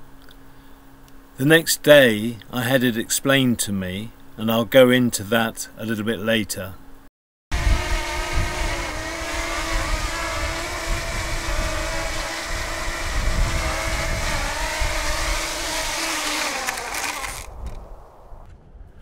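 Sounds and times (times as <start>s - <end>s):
steady hiss and low rumble: 0.0s - 7.1s
engine running: 7.5s - 17.8s.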